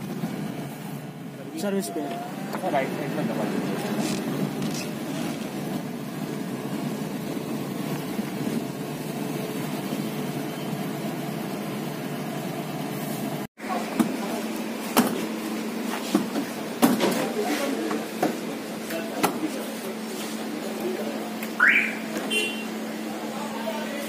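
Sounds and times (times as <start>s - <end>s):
car running noise: 0.0s - 13.5s.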